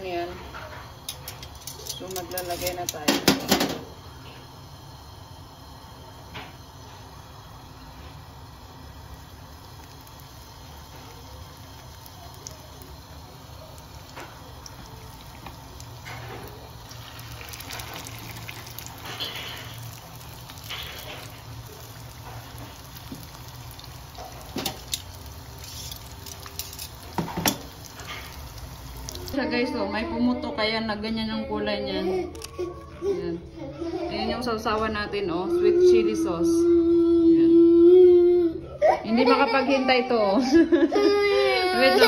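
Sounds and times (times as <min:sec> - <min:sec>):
food sizzling in hot oil: 0:00.0 - 0:30.2
oil popping: 0:09.5 - 0:29.4.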